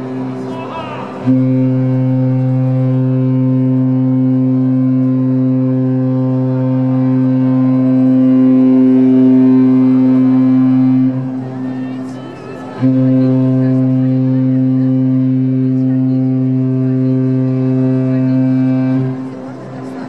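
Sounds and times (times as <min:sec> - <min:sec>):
ship's horn long low blast: 0:00.0 - 0:20.0.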